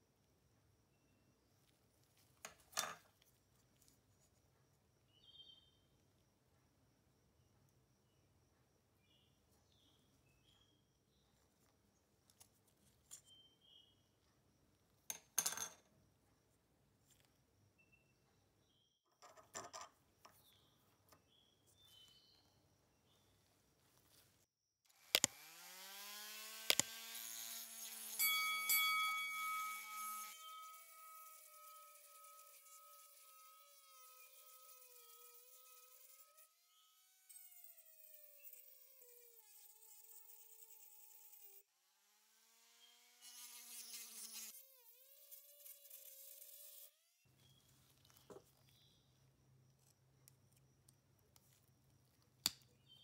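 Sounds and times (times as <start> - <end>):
rotary tool motor whine: 25.0 - 28.2, 29.2 - 47.1.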